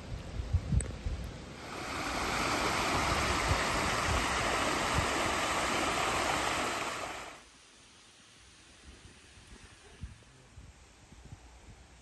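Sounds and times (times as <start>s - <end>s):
wind thumps on microphone: 0.0s - 7.3s
river water rushing: 1.6s - 7.5s.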